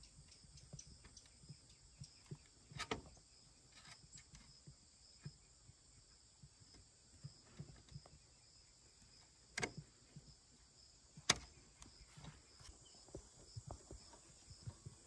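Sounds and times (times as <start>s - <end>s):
sharp metallic clicks: 9.5s - 9.9s, 11.2s - 12.0s.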